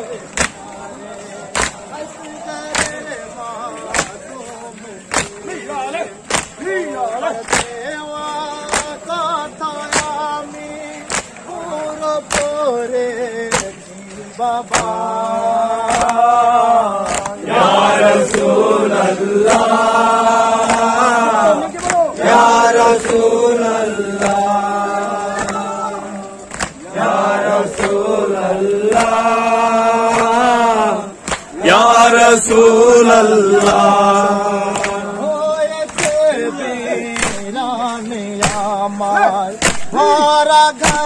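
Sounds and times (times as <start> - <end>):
men chanting together: 0.0 - 41.0.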